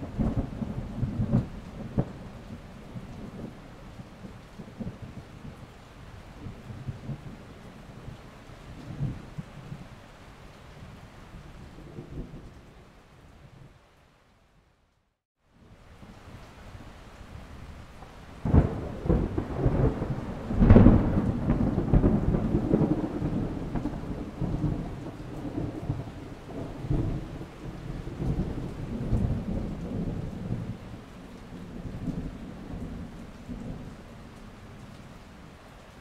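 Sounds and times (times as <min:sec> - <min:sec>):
rolling thunder rumble: 0:00.0 - 0:10.0, 0:17.4 - 0:35.0
steady rain: 0:00.0 - 0:36.0
thunder clap: 0:18.4 - 0:27.4.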